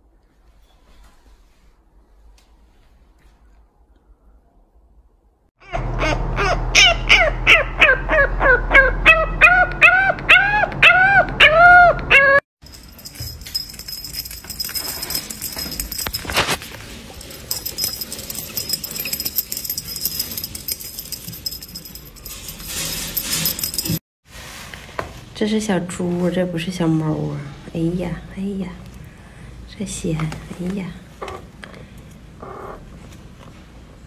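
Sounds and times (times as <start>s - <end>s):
rustling and light clicks: 12.6s - 24.0s
puppy whining: 17.2s - 24.0s.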